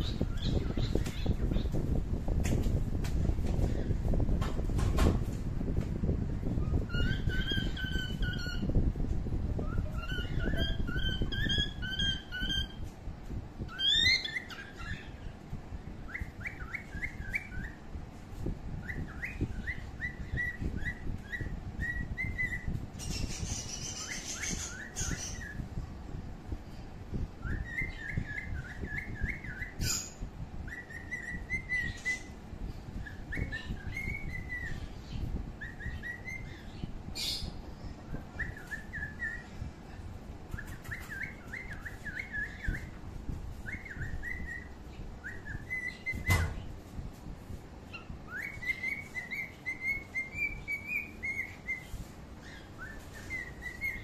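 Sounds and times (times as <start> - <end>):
small birds chirping: 0.0 - 4.4, 5.7 - 54.0.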